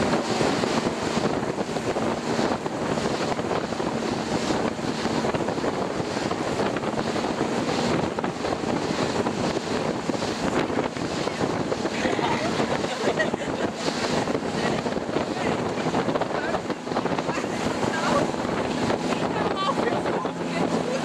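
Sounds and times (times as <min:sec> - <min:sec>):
motorboat engine running: 0:00.0 - 0:21.0
water rushing past hull: 0:00.0 - 0:21.0
wind buffeting microphone: 0:00.0 - 0:21.0.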